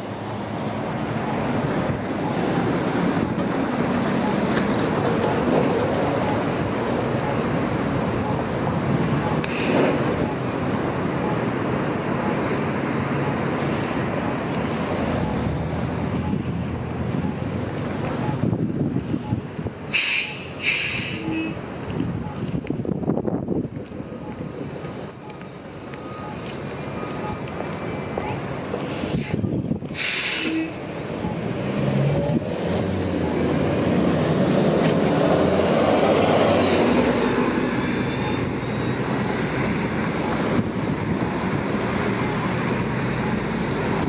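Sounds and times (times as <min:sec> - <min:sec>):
air brake hiss: 0:09.4 - 0:10.1, 0:19.9 - 0:21.4, 0:28.9 - 0:30.7.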